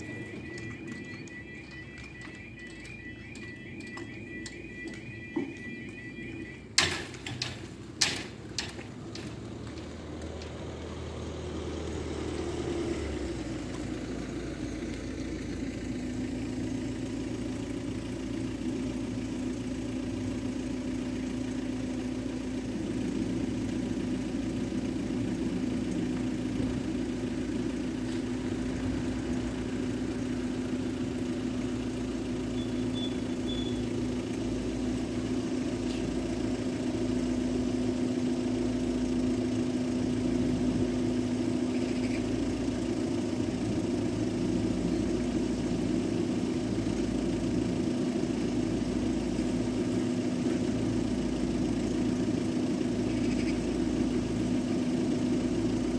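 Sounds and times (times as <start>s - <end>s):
diesel locomotive engine: 0.0s - 55.9s
level crossing barriers clunking: 6.8s - 9.5s.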